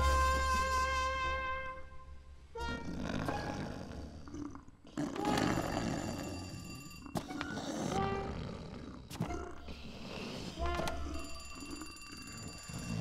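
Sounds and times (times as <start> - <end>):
cartoon bear roaring: 2.7 - 6.6.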